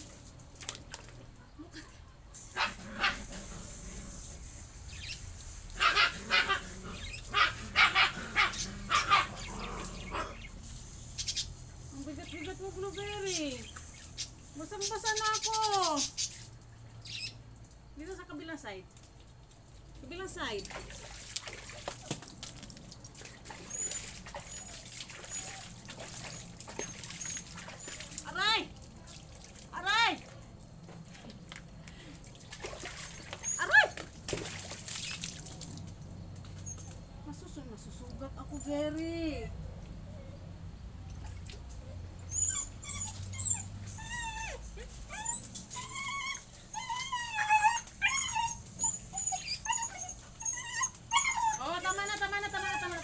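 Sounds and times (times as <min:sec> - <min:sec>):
water splashing in basin: 0:00.0 - 0:01.3, 0:18.8 - 0:37.0
puppy whining and whimpering: 0:23.7 - 0:28.0, 0:41.8 - 0:53.0.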